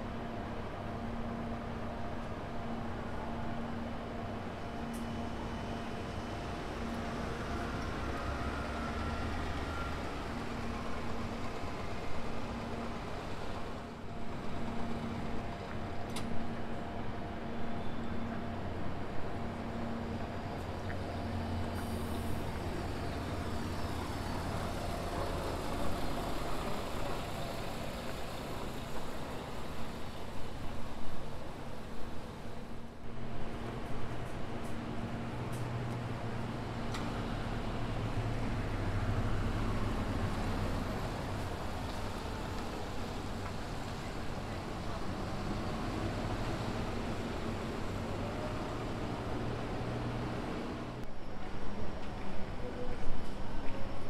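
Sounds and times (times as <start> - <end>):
bus driving past: 0.0 - 54.0
outdoor traffic noise: 0.0 - 54.0
bus engine humming: 18.5 - 51.0.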